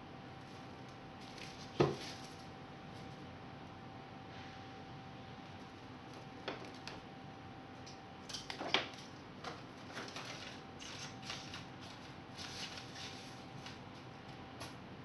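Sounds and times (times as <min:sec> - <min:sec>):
paper and plastic crinkling: 0:01.2 - 0:02.5, 0:09.8 - 0:13.8.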